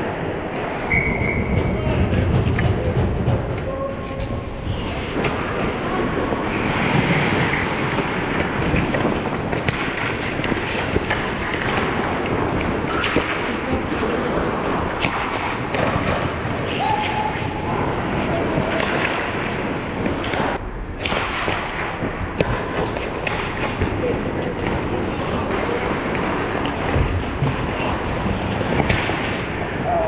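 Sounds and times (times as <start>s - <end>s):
hockey sticks and puck clacking: 0.0s - 30.0s
skates scraping ice: 3.8s - 30.0s.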